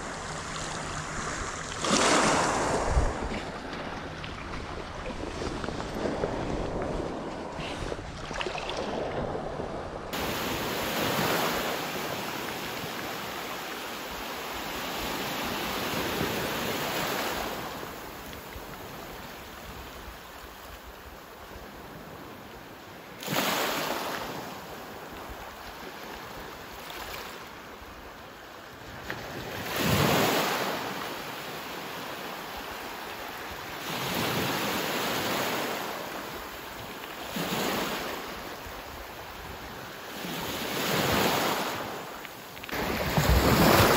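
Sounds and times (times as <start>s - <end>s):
waves washing on pebbles: 0.0s - 9.5s, 40.2s - 43.9s
wind buffeting microphone: 0.0s - 11.4s.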